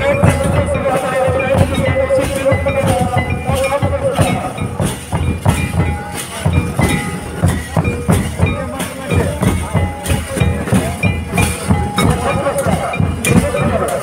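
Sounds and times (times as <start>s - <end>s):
crowd voices: 0.0s - 14.0s
drums beating: 0.0s - 14.0s.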